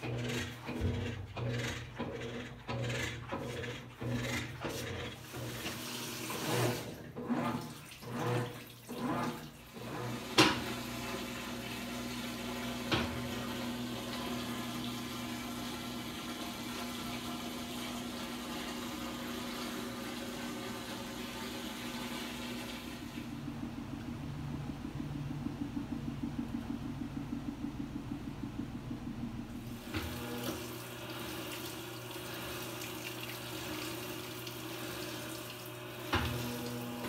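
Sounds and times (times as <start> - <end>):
water filling washing machine: 0.0 - 37.0
low hum: 22.6 - 30.6.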